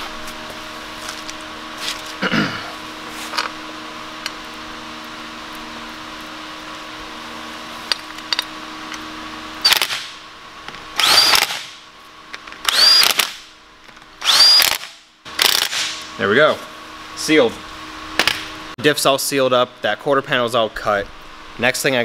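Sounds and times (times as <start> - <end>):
steady low hum: 0.0 - 22.0
cordless drill motor whine: 11.0 - 11.8, 12.6 - 13.4, 14.2 - 15.8.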